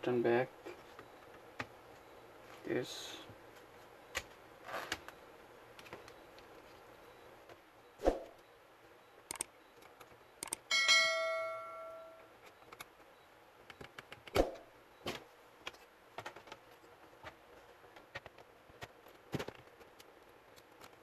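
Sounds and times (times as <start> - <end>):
metal object ringing: 10.7 - 12.3.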